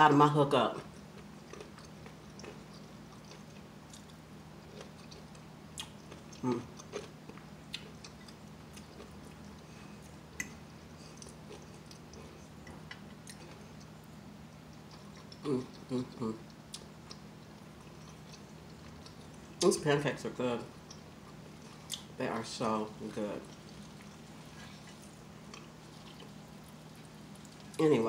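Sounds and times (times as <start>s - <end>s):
faint low hum: 0.0s - 28.0s
person chewing food: 0.8s - 19.7s, 20.7s - 22.6s, 23.4s - 27.8s
person humming: 6.4s - 6.7s, 15.4s - 16.4s.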